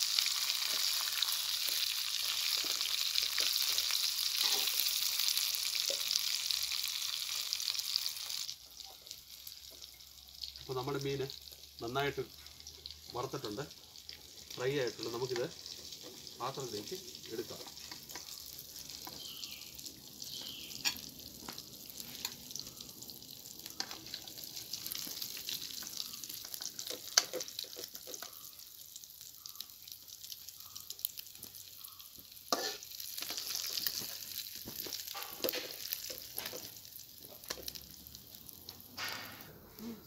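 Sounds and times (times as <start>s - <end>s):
fish sizzling in hot oil: 0.0s - 40.0s
spatula scraping pan: 32.5s - 33.5s.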